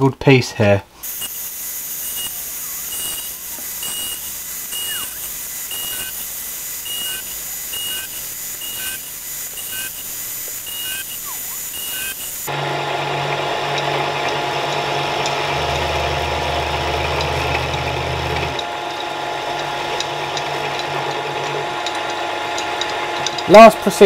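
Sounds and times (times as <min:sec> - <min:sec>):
milling machine cutting metal: 0:01.0 - 0:24.0
high beep-like tones: 0:01.1 - 0:12.5
lower beep-like tones: 0:02.0 - 0:12.5.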